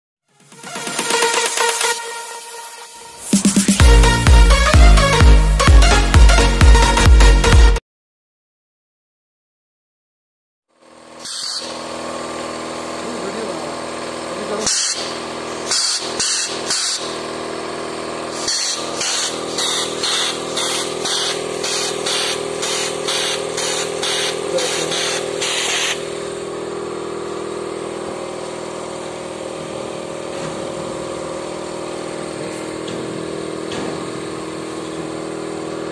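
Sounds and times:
steady mechanical hum: 10.8 - 35.9
compressed air venting hisses: 18.3 - 26.0.

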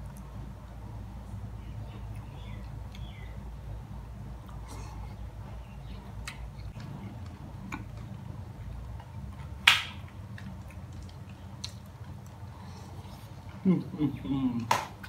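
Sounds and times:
mouth clicks and smacks chewing: 10.1 - 12.4.

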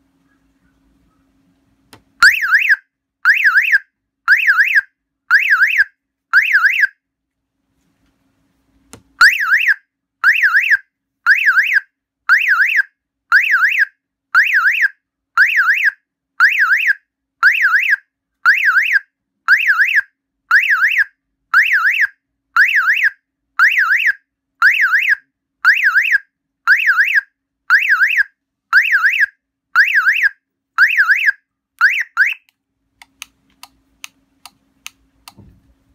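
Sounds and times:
car alarm warbling siren: 2.2 - 7.0, 9.2 - 32.5.

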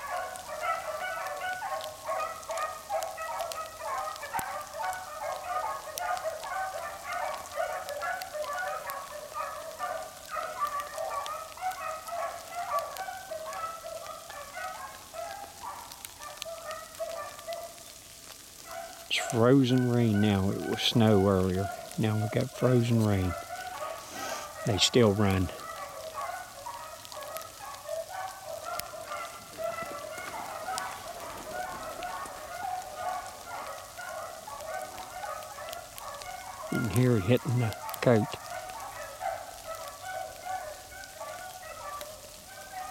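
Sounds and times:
frozen rain ticking: 0.0 - 42.9
hounds baying: 0.0 - 42.9.

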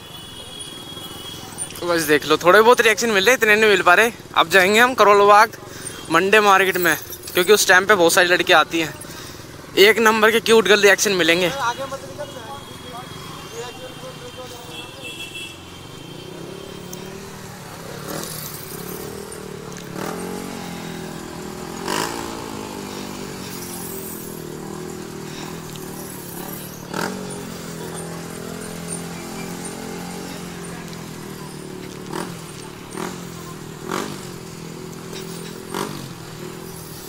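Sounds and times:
sharp street sounds: 0.0 - 37.0
scooter engine running: 14.7 - 37.0.

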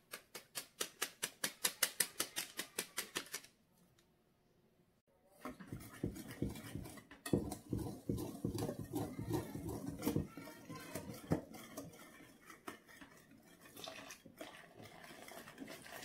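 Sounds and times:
whisk scraping flour in glass bowl: 5.4 - 16.0.

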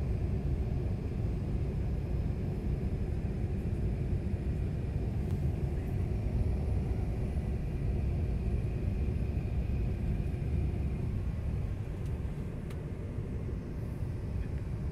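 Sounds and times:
jet airliner cabin rumble: 0.0 - 14.9.

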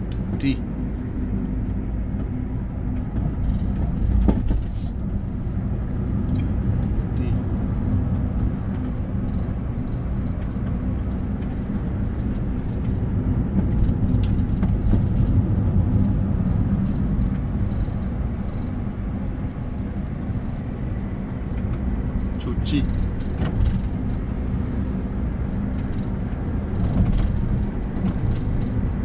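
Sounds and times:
vehicle engine and road rumble: 0.0 - 29.0.

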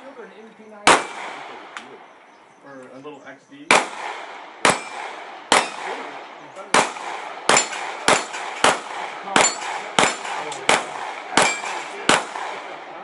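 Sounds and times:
handgun shots: 0.9 - 1.6, 3.7 - 6.1, 6.7 - 12.8.

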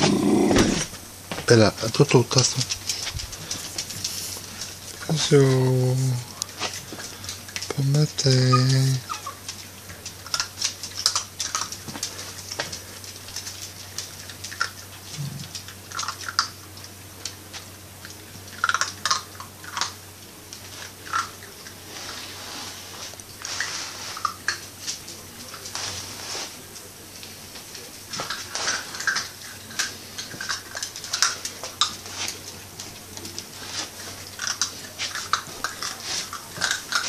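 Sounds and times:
puppies crunching kibble: 0.0 - 37.0.

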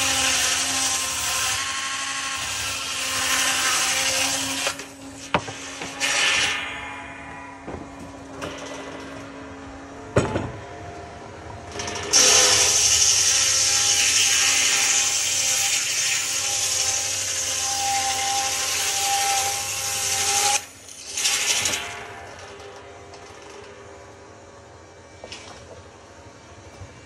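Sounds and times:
bandsaw cutting wood: 11.8 - 21.9.

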